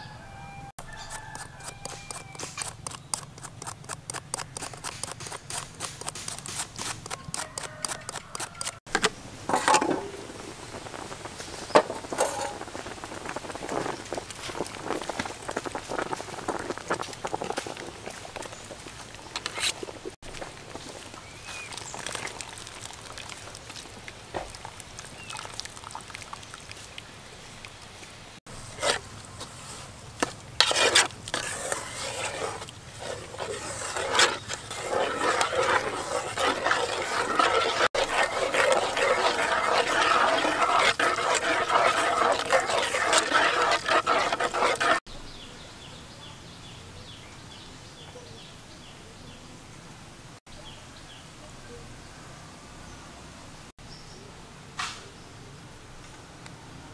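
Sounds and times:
wooden spatula scraping thick sauce: 0.9s - 8.8s, 9.5s - 23.3s, 28.5s - 45.1s.

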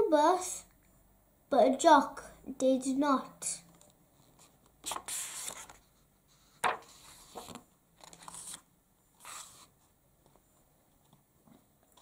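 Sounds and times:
hands rustling pages: 3.8s - 5.8s, 6.5s - 10.4s
paper page turning: 4.4s - 5.8s, 6.5s - 9.7s.

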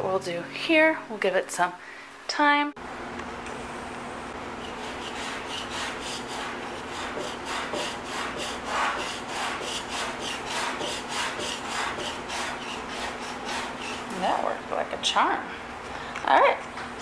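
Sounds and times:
scraper rasping on wood: 4.6s - 14.4s.

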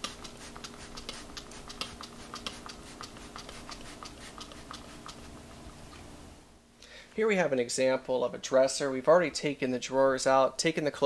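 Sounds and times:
spray bottle spritzing: 0.0s - 5.4s
faint steady hum: 0.0s - 11.0s.

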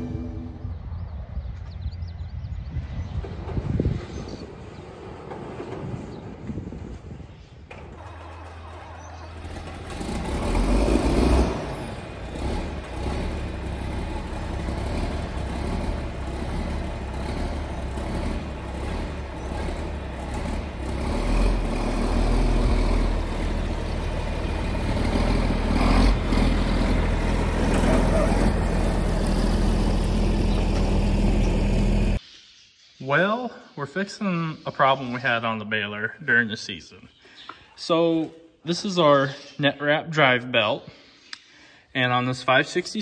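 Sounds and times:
tractor engine running: 4.5s - 32.2s.

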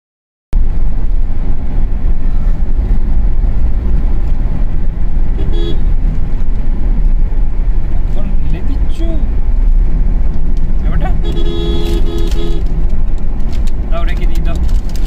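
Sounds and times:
car road and engine rumble: 0.6s - 15.0s
vehicle horn toot: 5.4s - 5.8s, 11.2s - 12.7s.

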